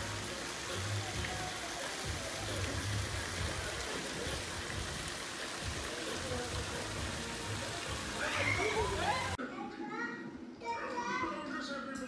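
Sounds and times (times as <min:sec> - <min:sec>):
fountain water splashing into pool: 0:00.0 - 0:09.4
faint distant voices: 0:00.0 - 0:12.0.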